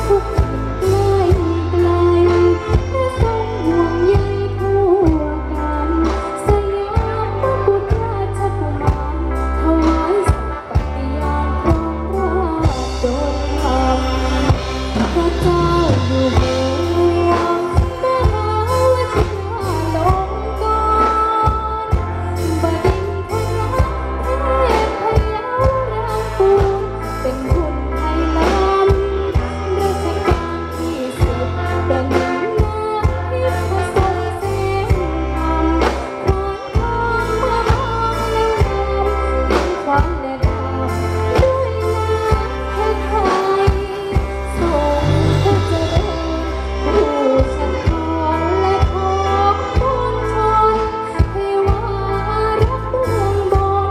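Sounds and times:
bass: 0.0s - 53.9s
person singing: 0.0s - 53.9s
steady drum beat: 40.0s - 46.5s.

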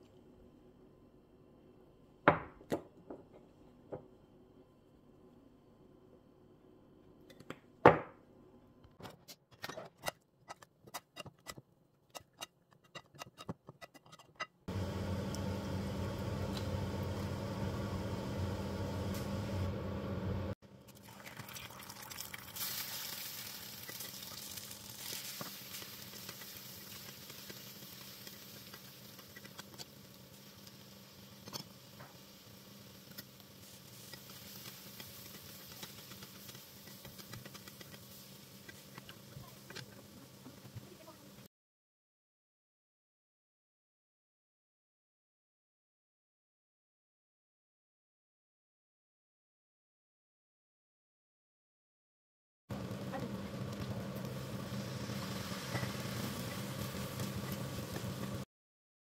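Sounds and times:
food sizzling in frying pan: 14.7s - 41.4s, 52.8s - 58.5s.

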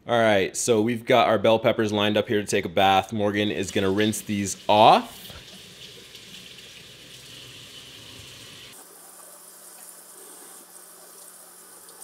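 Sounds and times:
tap water splashing into sink: 4.6s - 8.8s.

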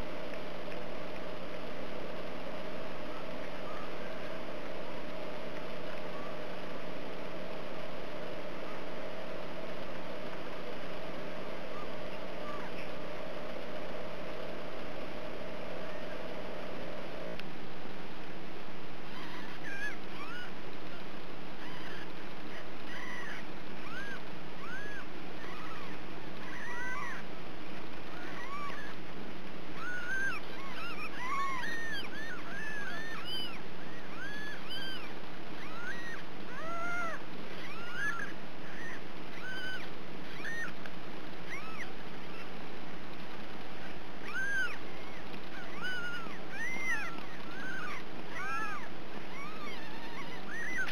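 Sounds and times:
kittens mewing: 19.0s - 20.6s, 21.6s - 27.3s, 28.1s - 29.0s, 29.7s - 40.8s, 41.4s - 42.6s, 43.8s - 50.9s.

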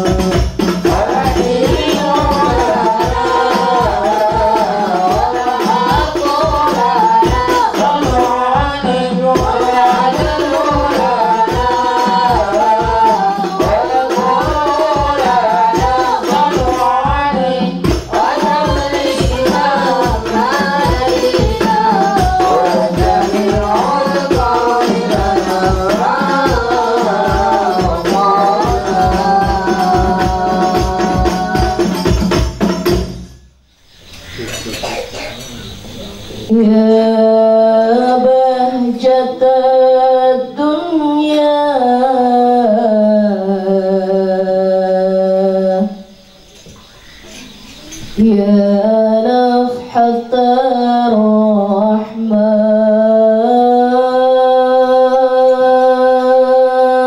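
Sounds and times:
woman singing unaccompanied: 0.0s - 32.7s, 36.5s - 57.0s
people singing devotional verses: 0.0s - 33.2s, 34.1s - 57.0s
frame drums beating: 0.0s - 33.4s.

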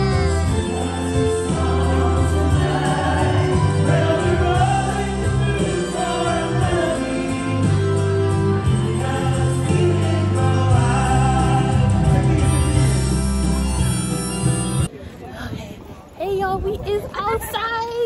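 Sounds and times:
group singing: 0.0s - 13.2s
piano and bass backing: 0.0s - 14.9s.

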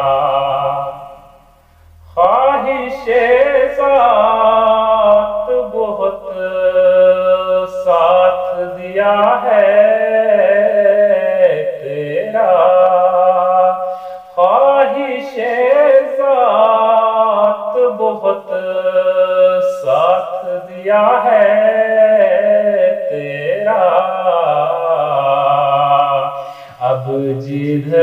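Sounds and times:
man chanting devotional poem: 0.0s - 28.0s
man breathing: 1.4s - 2.2s, 13.8s - 14.4s, 26.3s - 26.8s.

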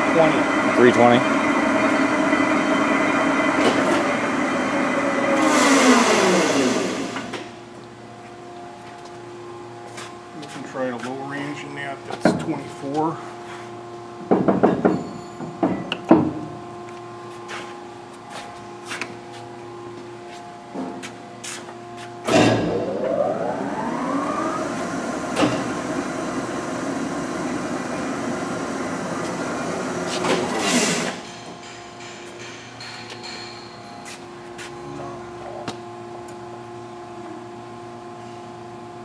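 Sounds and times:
rush of machine noise: 0.0s - 7.5s, 22.3s - 31.3s
lathe gear whine: 0.0s - 9.8s, 22.3s - 37.2s
steady machine hum: 0.0s - 39.0s.

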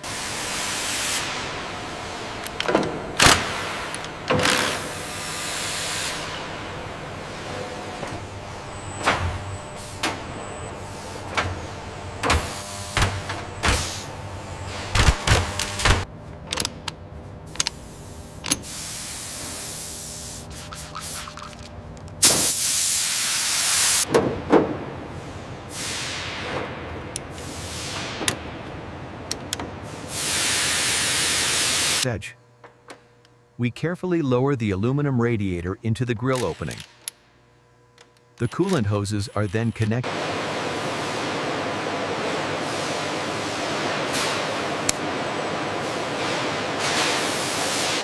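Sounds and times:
hydraulic fluid spraying hiss: 22.2s - 24.1s, 30.1s - 32.0s.

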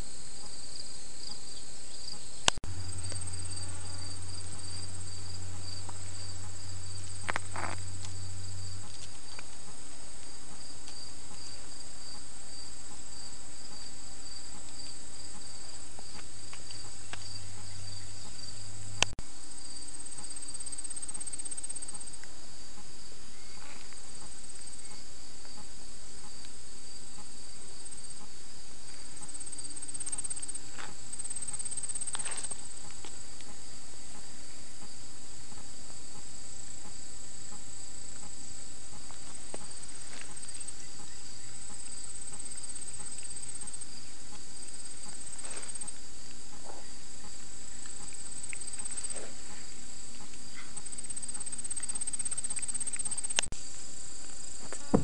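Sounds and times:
high insect trill: 0.0s - 55.0s
insects chirring: 0.0s - 55.0s
faint rustles: 28.8s - 33.5s, 44.6s - 55.0s.

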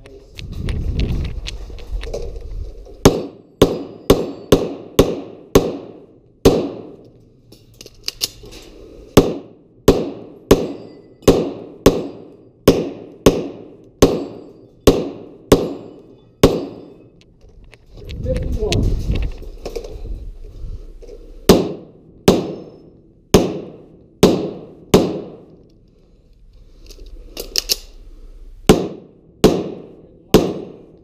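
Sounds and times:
pistol shots echoing: 3.0s - 7.0s, 9.2s - 16.9s, 21.5s - 25.5s, 28.7s - 30.9s.

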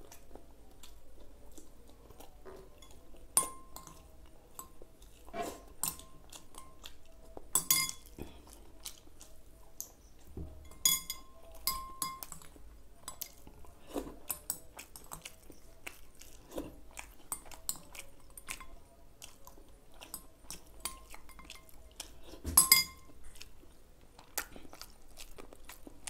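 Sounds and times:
chewing: 0.0s - 10.4s, 11.0s - 26.0s
cutlery clinking on glass bowl: 2.8s - 4.0s, 4.6s - 6.9s, 7.5s - 8.3s, 10.4s - 13.4s, 20.0s - 21.8s, 22.4s - 23.2s.

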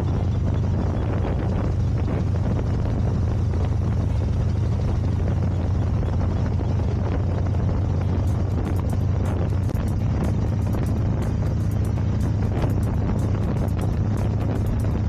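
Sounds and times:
motorcycle engine cruising: 0.0s - 15.0s
wind on microphone: 0.0s - 15.0s.

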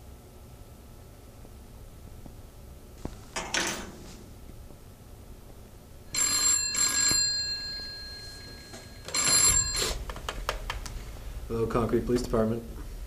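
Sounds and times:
telephone bell ringing: 6.1s - 10.0s.

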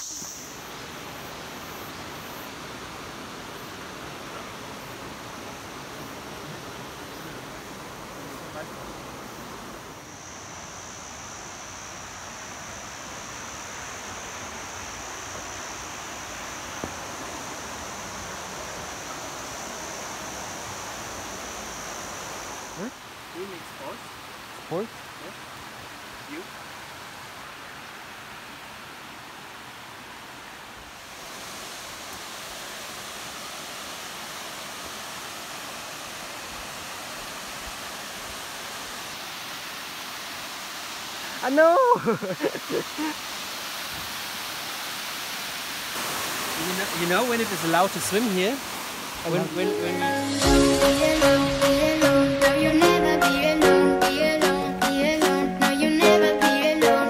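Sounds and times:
high-pitched whine: 0.0s - 1.8s, 49.2s - 53.9s
stream flowing over boulders: 0.0s - 53.1s.

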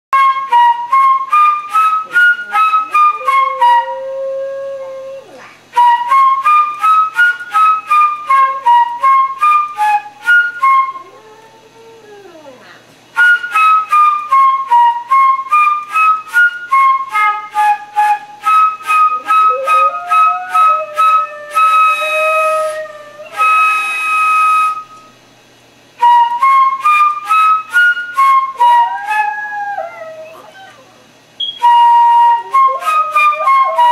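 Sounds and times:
dog howling: 10.5s - 12.8s, 18.8s - 23.8s, 28.5s - 31.0s.

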